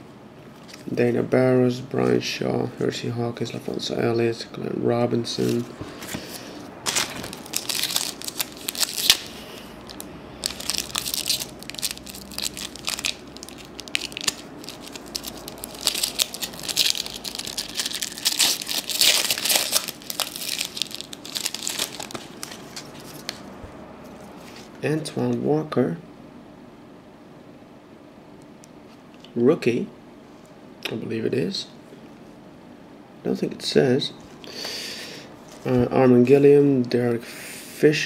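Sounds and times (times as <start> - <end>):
foil wrappers crinkling: 5.4 - 23.4.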